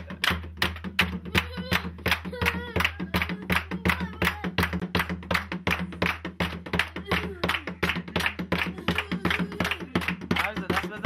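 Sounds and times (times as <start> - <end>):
group clapping in rhythm: 0.0 - 11.0.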